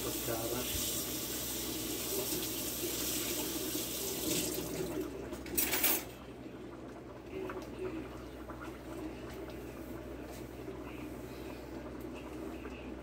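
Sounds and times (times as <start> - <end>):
tap running water: 0.0 - 5.9.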